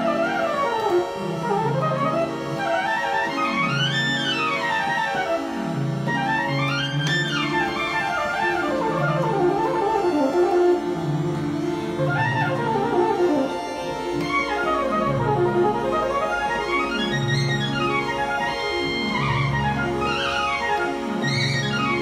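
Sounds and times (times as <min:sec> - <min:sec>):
analogue synthesizer played by hand: 0:00.0 - 0:22.0
fast synth arpeggios: 0:00.0 - 0:22.0
held low synth notes: 0:00.0 - 0:22.0.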